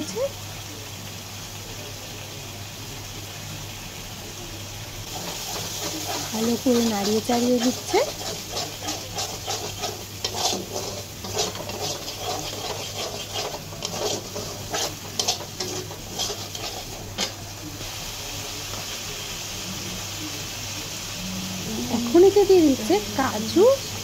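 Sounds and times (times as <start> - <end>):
paste sizzling in oil: 0.0 - 24.0
spoon stirring and scraping a pan: 5.1 - 17.8.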